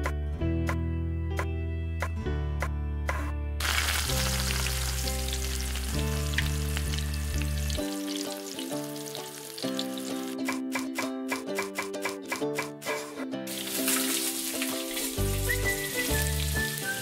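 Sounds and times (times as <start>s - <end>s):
background music: 0.0s - 17.0s
food sizzling in oil: 3.6s - 10.4s, 12.9s - 17.0s.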